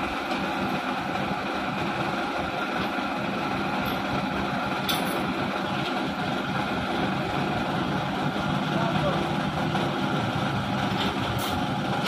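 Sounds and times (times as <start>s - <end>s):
diesel truck engine idling: 0.0s - 12.0s.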